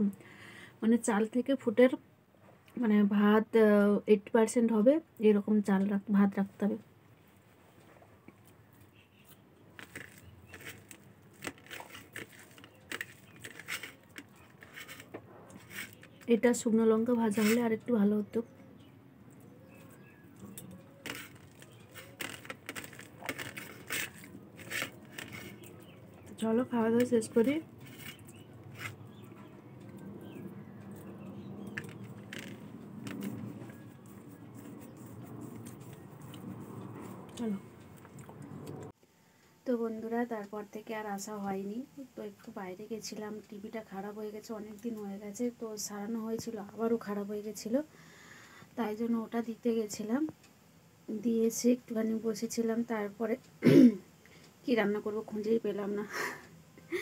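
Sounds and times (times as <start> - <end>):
low steady hum: 0.0 - 57.0
eating by hand clicks and rustles: 8.3 - 16.4, 19.3 - 26.4, 27.0 - 38.9
chewing rice: 9.8 - 16.3, 19.3 - 26.3, 27.6 - 38.8.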